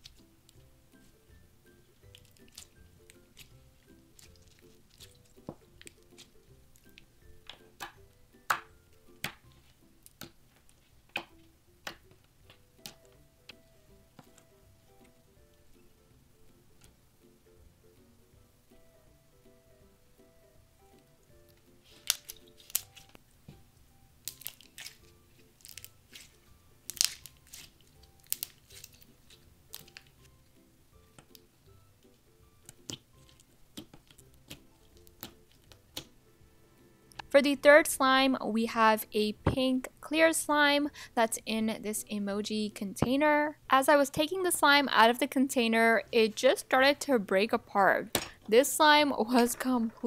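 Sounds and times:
slime squishing with wet pops: 0.0 - 15.1, 21.0 - 23.6, 24.2 - 30.4, 32.1 - 36.2
quiet background music: 0.0 - 50.0
wet clicks and pops of slime: 22.0 - 22.9, 26.9 - 27.4, 32.6 - 36.1.

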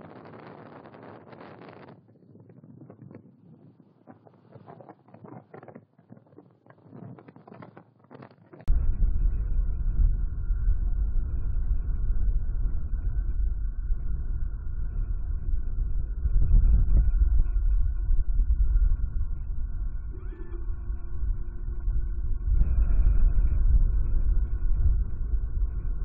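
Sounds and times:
wind and rain crackling on microphone: 0.0 - 26.0
wind buffeting microphone: 8.7 - 26.0.

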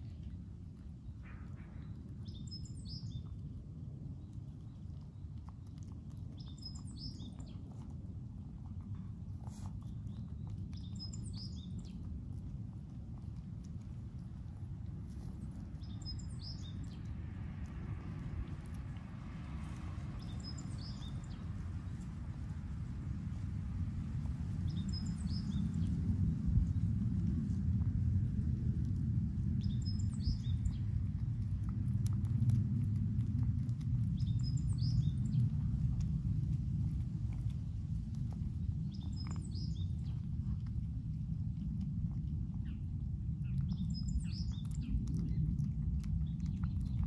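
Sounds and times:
low background rumble: 0.0 - 47.0
small birds chirping: 0.2 - 3.4, 4.2 - 27.6, 28.5 - 32.6, 33.4 - 41.7, 42.3 - 47.0
small bird chirping: 6.4 - 7.8, 9.5 - 12.0, 15.1 - 17.1, 19.7 - 21.6, 24.6 - 26.0, 29.6 - 30.8, 34.2 - 35.4, 38.8 - 40.2, 43.4 - 45.4.

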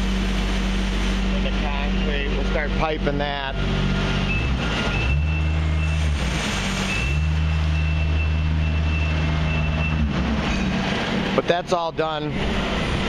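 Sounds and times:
high-pitched warning beep: 4.2 - 6.1, 6.9 - 10.1.

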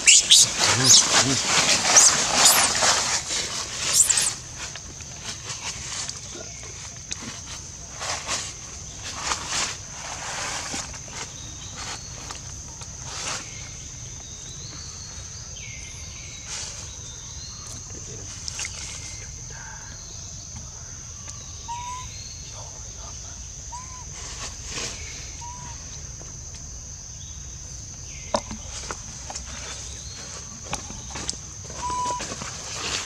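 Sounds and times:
short high chirps: 0.0 - 1.1, 1.9 - 2.8, 3.9 - 4.4
bird calling: 0.0 - 4.5, 17.4 - 24.1, 31.7 - 32.4
high-pitched insect drone: 0.0 - 4.5
dry leaves rustling: 0.0 - 12.3.

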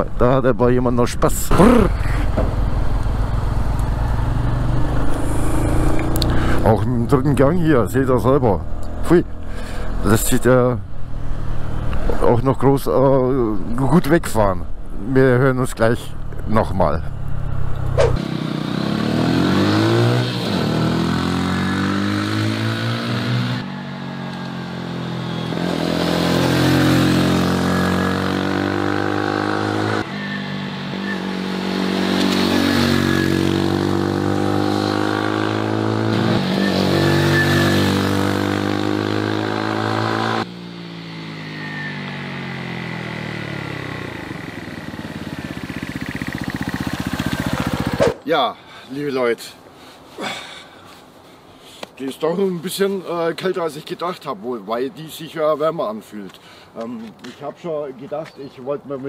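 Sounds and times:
motorcycle engine accelerating: 1.5 - 7.4, 16.2 - 48.2.

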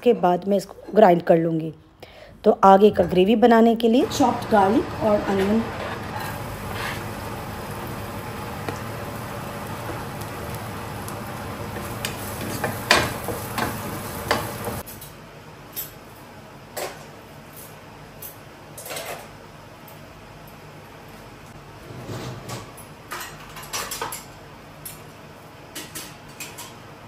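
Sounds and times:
onion sizzling in oil: 4.0 - 14.8
spatula scraping a pot: 5.6 - 7.3.

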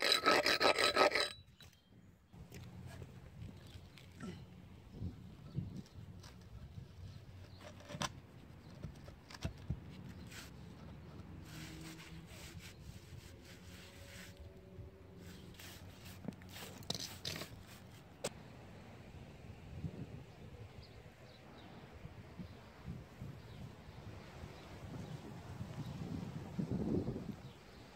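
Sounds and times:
paver scraping on sand: 0.0 - 1.4, 9.9 - 18.3
stiff broom brushing: 10.2 - 18.2.

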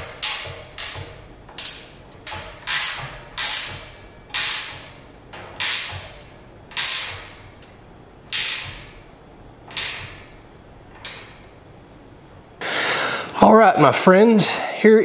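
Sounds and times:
scraping strokes on steel post: 0.0 - 5.0, 5.6 - 7.5, 8.3 - 9.0.

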